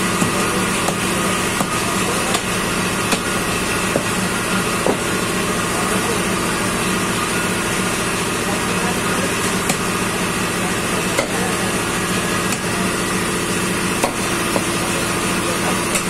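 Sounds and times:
steady mechanical hum: 0.0 - 16.0
cleaver chopping on wooden block: 0.2 - 2.5, 3.1 - 3.3, 11.2 - 11.4, 12.5 - 12.7, 14.0 - 14.8.

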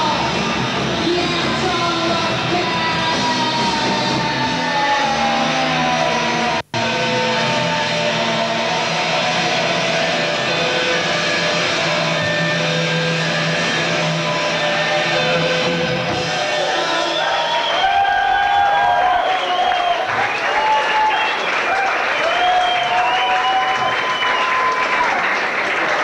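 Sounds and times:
electric guitar sustained notes: 0.0 - 16.4
rock band playing live: 0.0 - 17.4.

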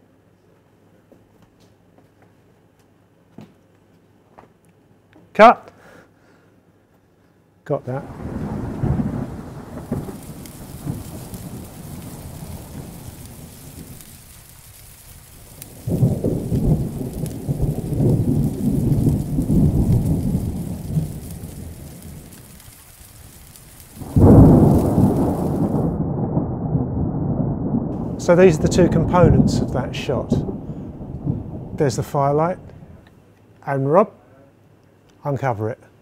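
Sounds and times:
rain falling: 7.9 - 26.3, 27.9 - 33.1
thunder rolling: 7.9 - 33.1.

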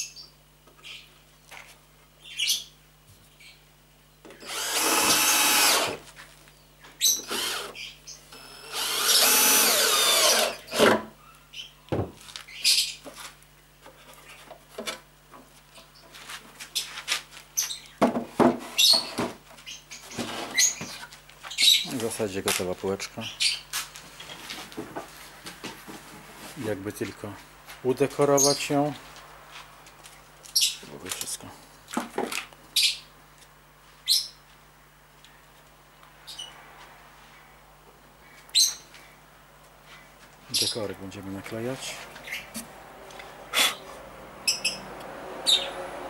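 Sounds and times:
drill driving screws into wood: 4.4 - 6.0, 7.2 - 11.0.

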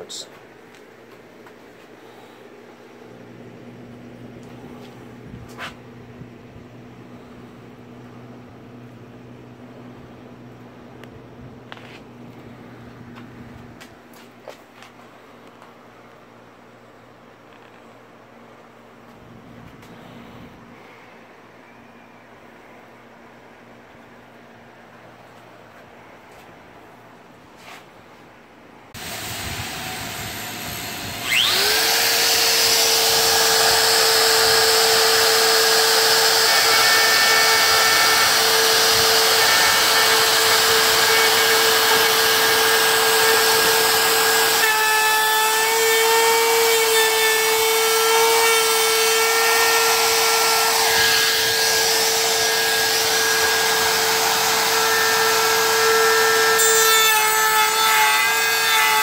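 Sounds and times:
router whining: 29.0 - 59.0.

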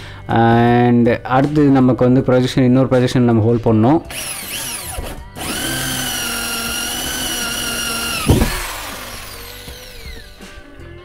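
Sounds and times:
electric drill motor whining: 4.1 - 10.6
sharp knock: 8.2 - 8.8.

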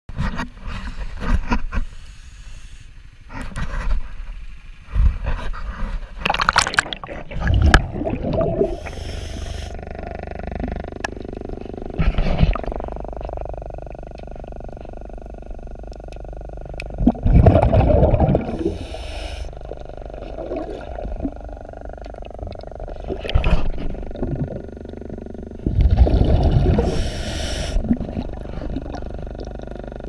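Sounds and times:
steady hum with faint whine: 0.1 - 30.0
hiss: 1.9 - 3.0, 8.6 - 9.8, 18.5 - 19.6, 26.8 - 27.8
regulator bubbles rumbling underwater: 3.7 - 30.0.

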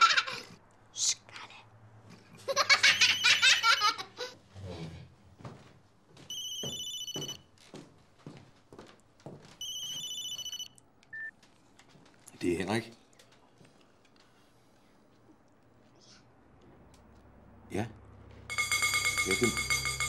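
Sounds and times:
phone electronic ringtone: 2.8 - 3.9, 6.3 - 7.4, 9.6 - 11.3, 18.5 - 20.0.

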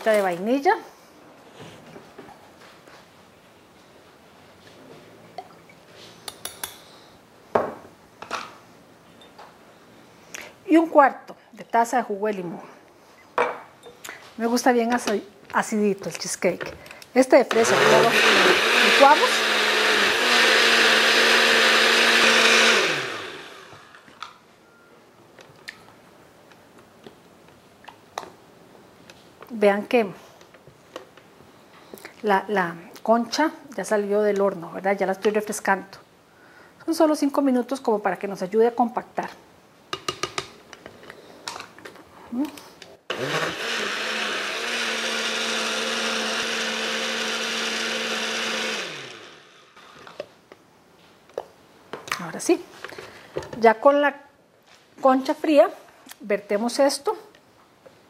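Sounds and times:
blender motor whining: 17.5 - 24.1, 43.1 - 50.2.

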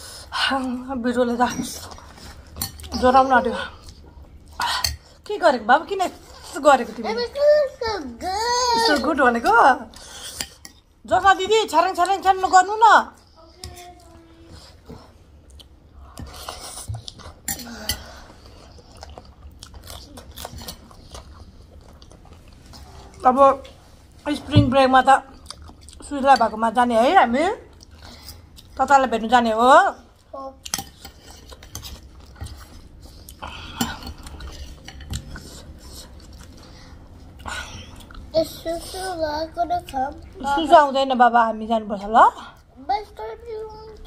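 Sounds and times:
chewing soft wet food: 18.3 - 23.2, 25.3 - 26.1, 34.0 - 38.3.

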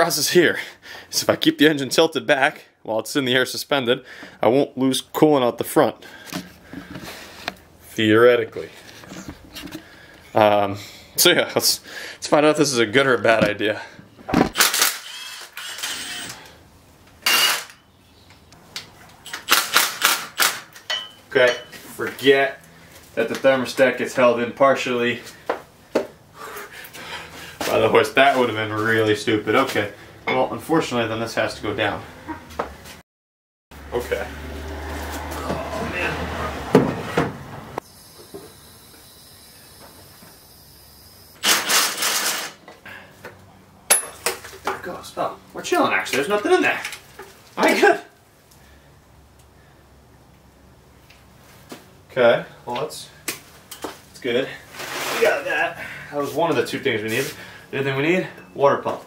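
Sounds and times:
rapid rattling mechanical impacts: 41.4 - 42.6.

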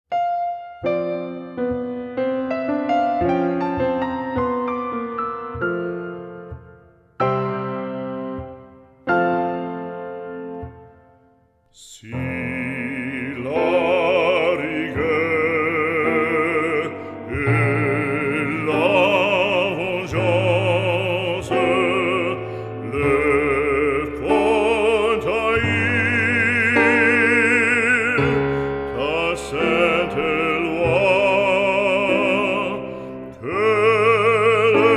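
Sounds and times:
operatic singing: 11.7 - 34.9.

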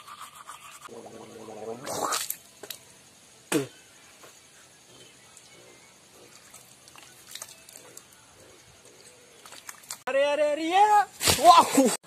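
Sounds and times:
person spitting: 1.8 - 2.4, 3.5 - 3.7.

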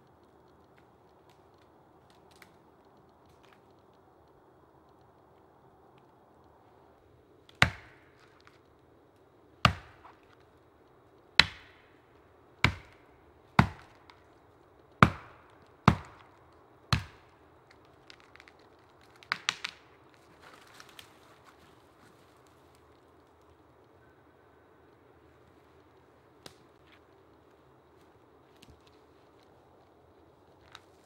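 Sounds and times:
axe chopping into tree trunk: 7.6 - 8.3, 9.6 - 10.1, 11.4 - 11.8, 12.6 - 13.0, 13.6 - 14.0, 15.0 - 16.2.

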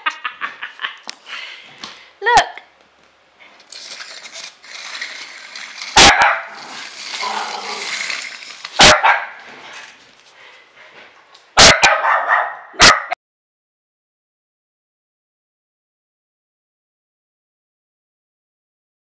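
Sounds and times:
steady rattling hiss: 3.7 - 8.8
puppy barking: 6.0 - 6.6, 8.8 - 9.4, 11.6 - 13.2.

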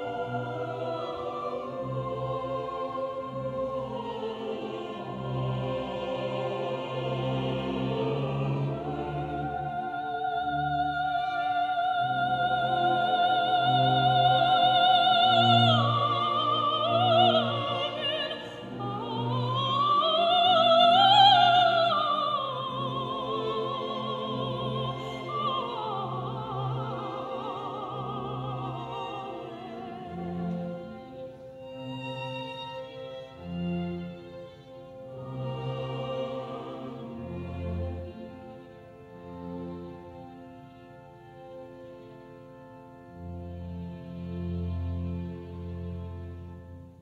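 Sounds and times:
operatic singing voice: 0.0 - 31.0, 35.2 - 38.3
orchestral accompaniment: 0.0 - 47.0.

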